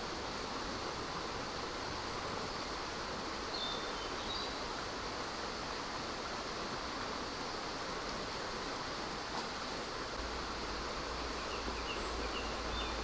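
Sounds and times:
river flowing: 0.0s - 13.0s.

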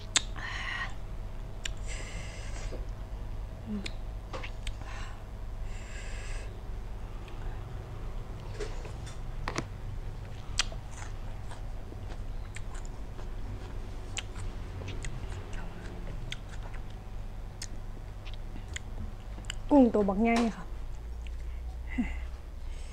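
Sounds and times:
chewing food: 8.2s - 19.7s, 20.8s - 22.3s.

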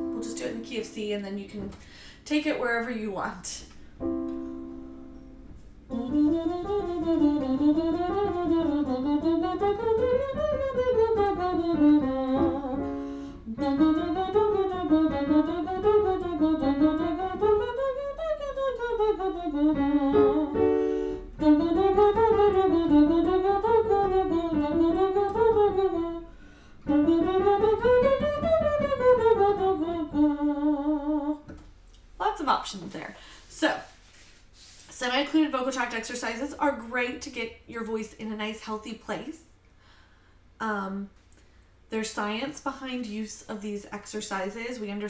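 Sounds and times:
woman humming vocal exercise: 5.9s - 20.7s.

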